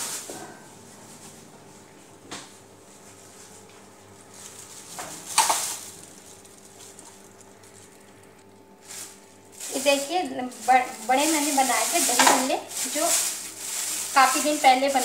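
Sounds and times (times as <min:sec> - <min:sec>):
steady low hum: 0:00.0 - 0:15.0
plastic tray and bag rustling: 0:04.2 - 0:15.0.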